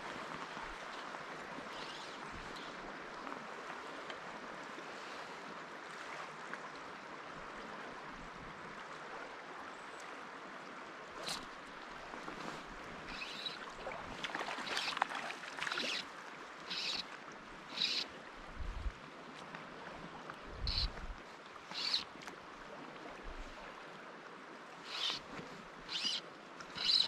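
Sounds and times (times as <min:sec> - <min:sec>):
river current rushing: 0:11.2 - 0:18.9, 0:20.5 - 0:22.1, 0:24.7 - 0:27.0.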